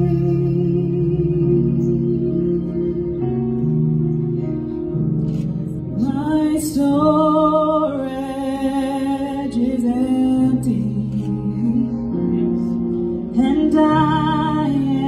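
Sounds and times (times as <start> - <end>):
woman singing: 0.0 - 3.2, 6.0 - 12.3, 13.4 - 15.0
soft sustained chords: 0.0 - 15.0.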